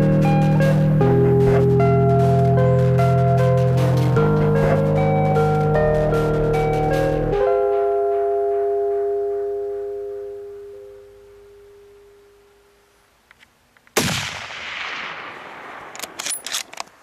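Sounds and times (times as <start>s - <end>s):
music chord ringing out: 0.0s - 12.9s
loud rifle shot with echo: 14.0s - 16.2s.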